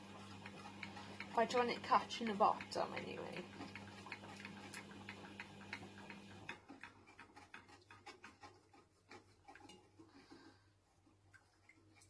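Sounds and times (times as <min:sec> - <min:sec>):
low steady hum: 0:00.0 - 0:06.6.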